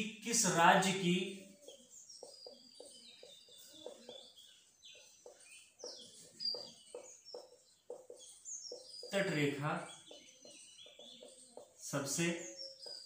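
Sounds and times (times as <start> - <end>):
small birds chirping: 0.0 - 13.0
marker writing on a whiteboard: 1.8 - 4.4, 5.0 - 9.2, 10.8 - 11.8.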